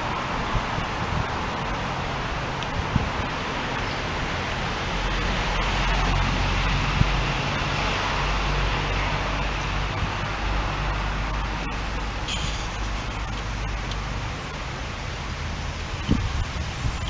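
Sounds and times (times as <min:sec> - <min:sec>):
steady hiss: 0:09.3 - 0:17.0.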